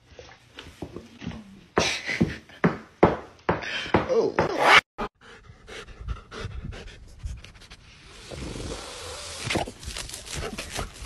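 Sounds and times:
dog panting and sniffing: 5.2 - 8.0, 9.6 - 11.0
scratchy digging noises: 7.3 - 11.0.

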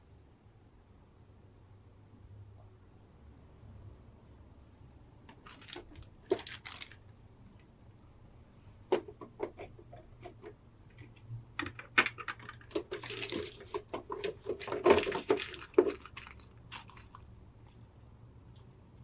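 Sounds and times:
plastic blister tray crackling: 5.3 - 7.2, 8.8 - 17.3
wrapping rustling: 5.4 - 7.1, 10.9 - 17.3.

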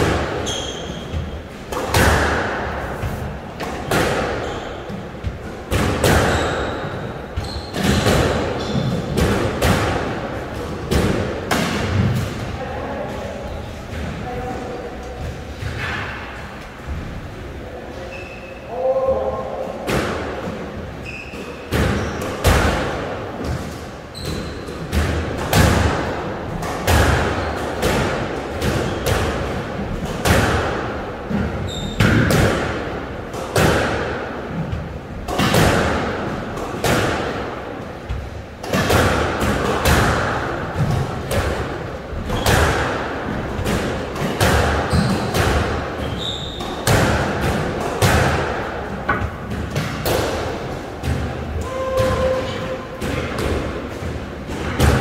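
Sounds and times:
squash ball hits echoing: 0.0 - 17.1, 18.8 - 55.0.

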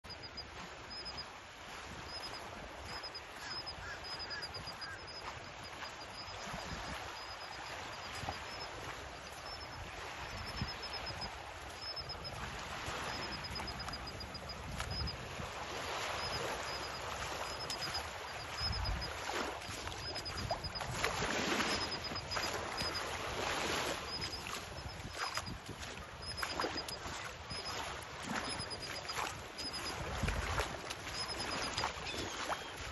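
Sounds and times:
small waves washing on shore: 0.1 - 32.9
gulls calling: 2.9 - 6.5.

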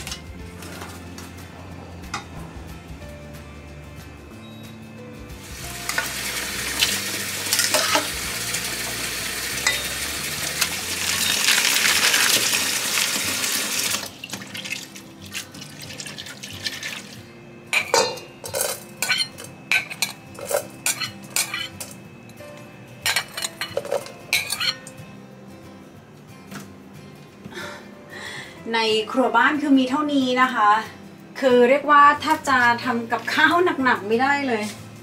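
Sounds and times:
tap water pouring into a metal bowl: 5.9 - 17.2
metal spoon clinking on a plate: 17.7 - 21.9, 23.0 - 24.9.

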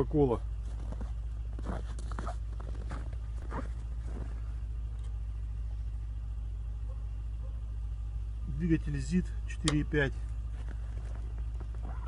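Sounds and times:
single-cylinder engine droning: 0.0 - 12.0
soft crunches: 0.6 - 5.2.

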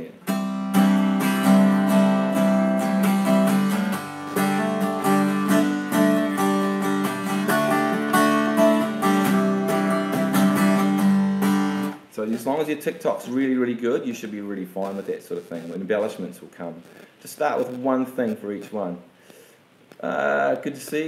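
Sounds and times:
acoustic guitar strumming: 0.0 - 12.1.

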